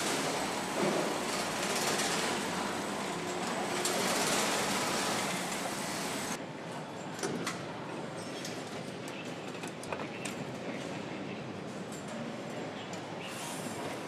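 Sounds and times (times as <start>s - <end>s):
machinery noise: 0.0s - 6.4s.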